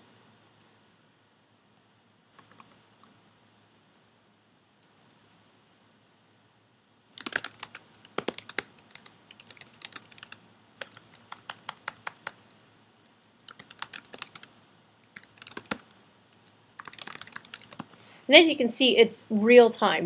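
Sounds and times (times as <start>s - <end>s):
keyboard typing clicks: 2.4s - 3.2s, 7.2s - 18.0s.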